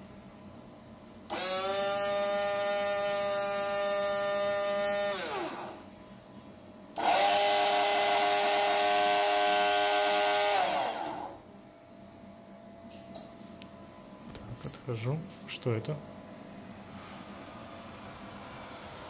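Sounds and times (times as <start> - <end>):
electric motor whine: 1.3 - 5.9, 7.0 - 11.5.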